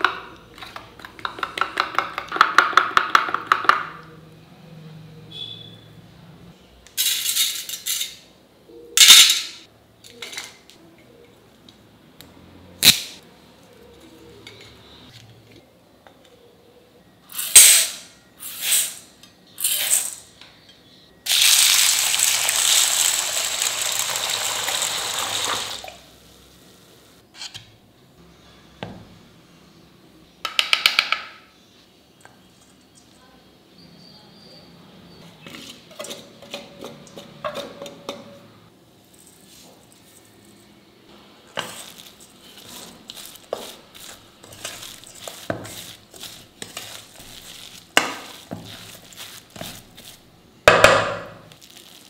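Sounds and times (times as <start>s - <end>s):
water poured onto lentils: 21.3s - 26.0s
utensils scraping steel bowls: 35.2s - 38.6s, 41.5s - 50.2s.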